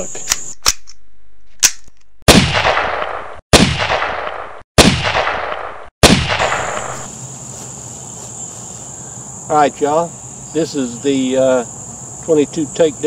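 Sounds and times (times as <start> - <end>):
gunshots ringing out: 2.3 - 7.1.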